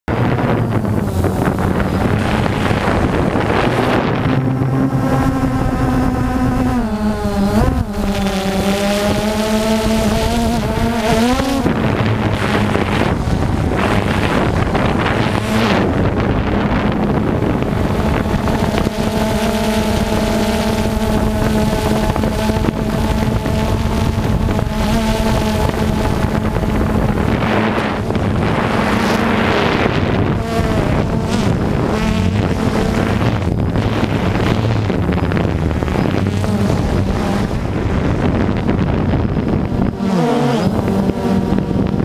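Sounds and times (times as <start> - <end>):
drone propellers buzzing: 0.0 - 42.0
wind noise on microphone: 0.0 - 42.0.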